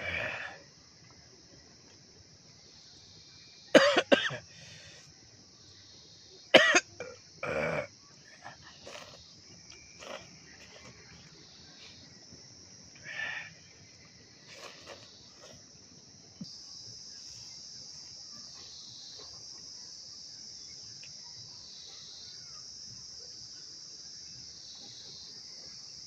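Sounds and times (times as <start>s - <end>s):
insects chirping: 0.0s - 26.0s
man slurping noodles: 8.8s - 9.3s, 10.0s - 11.0s, 14.5s - 15.6s.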